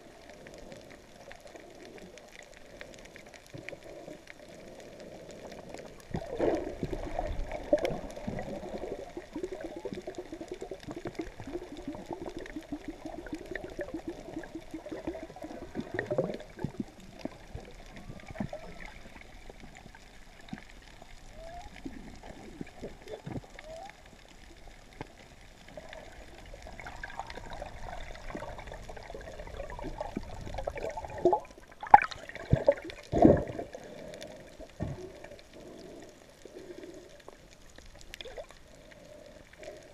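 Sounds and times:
underwater water noise: 0.0s - 39.9s.

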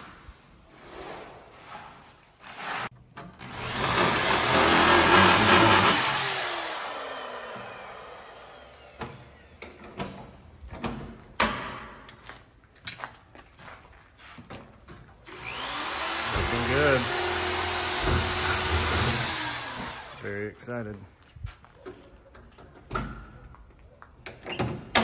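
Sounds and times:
power tool motor running: 3.4s - 9.7s, 15.3s - 20.4s.

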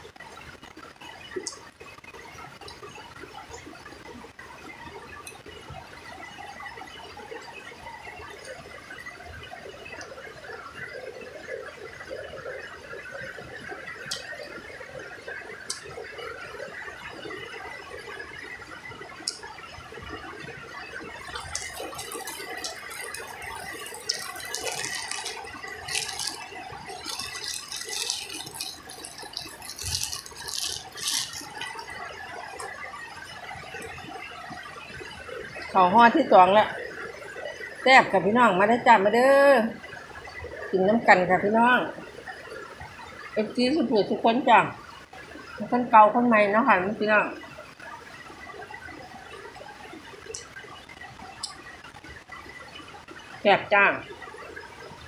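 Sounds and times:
rain pattering on roof: 13.3s - 18.4s, 19.0s - 36.8s, 49.6s - 55.0s
crackling and crunching: 21.2s - 32.8s.

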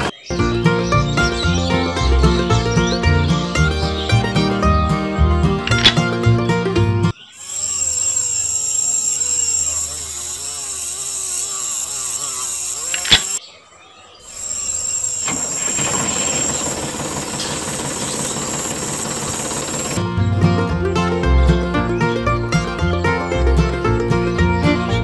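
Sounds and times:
rough engine running: 0.0s - 13.4s, 14.4s - 25.0s
sharp click: 5.6s - 6.1s, 12.8s - 13.4s
small engine running: 5.6s - 6.2s, 7.0s - 13.4s, 14.3s - 25.0s.

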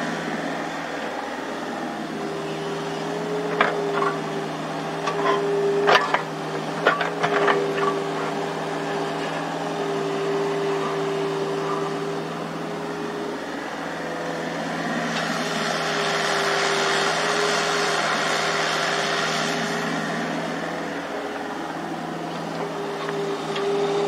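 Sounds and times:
excavator engines and hydraulics whining: 0.0s - 24.0s
metal clanks from digging: 5.0s - 8.3s.

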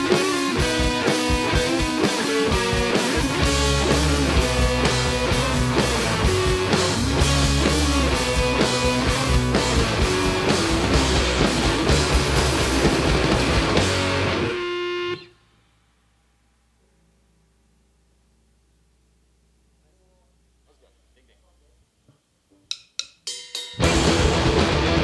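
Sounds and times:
live rock band playing: 0.0s - 15.3s, 23.5s - 25.0s.

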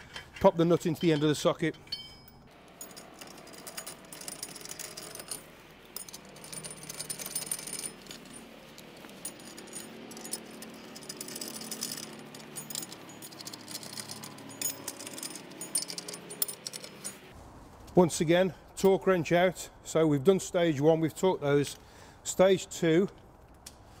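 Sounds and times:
metal wheel nuts clinking: 0.0s - 17.3s.

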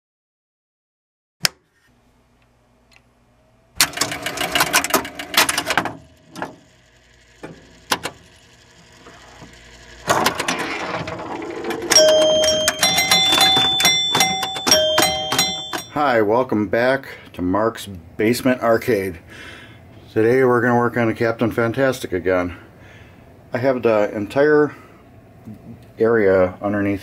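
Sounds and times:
pinball relays clicking rapidly: 3.8s - 8.7s, 9.6s - 16.0s.

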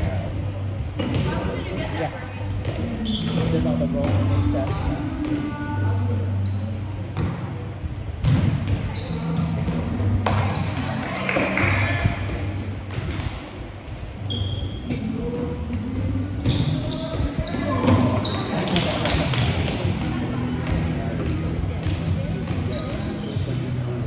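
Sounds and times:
background chatter of players: 0.0s - 24.0s
volleyballs struck and bouncing: 8.2s - 13.6s, 16.4s - 23.0s.

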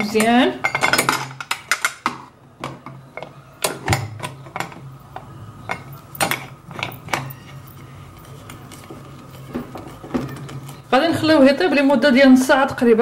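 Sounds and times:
metal lid clinks and knocks: 0.6s - 4.8s.

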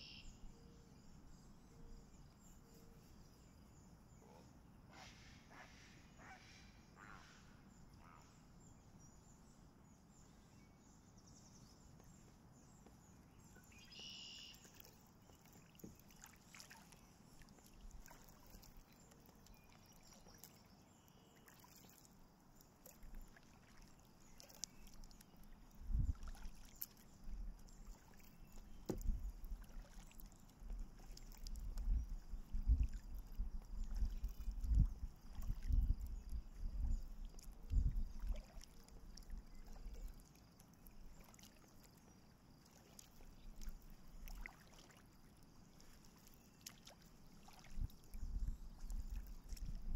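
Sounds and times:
faint river ambience: 0.0s - 49.9s
paddle strokes in water: 4.9s - 7.5s, 11.4s - 49.9s
paddle knocking against hull: 28.8s - 29.2s.

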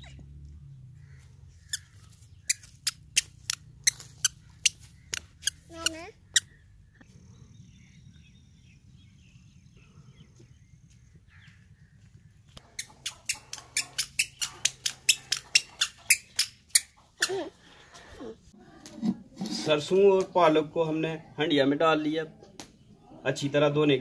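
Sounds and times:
low outdoor rumble: 0.0s - 15.8s
footsteps on dirt path: 1.0s - 6.5s, 10.2s - 15.7s.

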